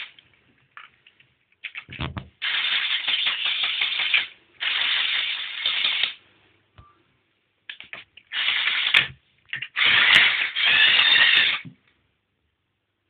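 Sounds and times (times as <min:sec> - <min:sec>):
toy electric motors and gears running: 0:02.4 - 0:06.2, 0:08.3 - 0:09.1, 0:09.7 - 0:11.6.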